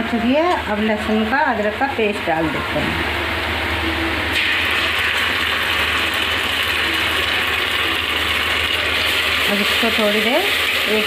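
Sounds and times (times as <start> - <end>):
steady low hum: 0.0 - 5.1
onions sizzling in hot oil: 4.3 - 11.0.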